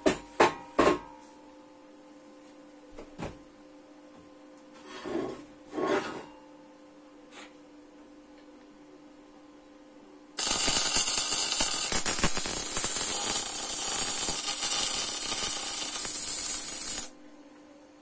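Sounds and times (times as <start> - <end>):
welding arc crackling and hissing: 10.4 - 17.2.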